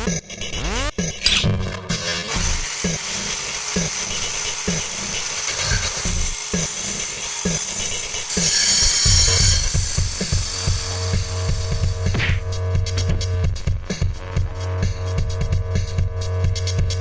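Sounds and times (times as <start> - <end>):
circular saw blade whirring: 0.6 - 13.1.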